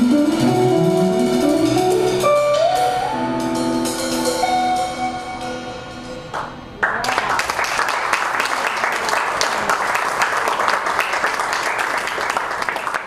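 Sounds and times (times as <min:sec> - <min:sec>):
audience applause: 0:06.8 - 0:13.0.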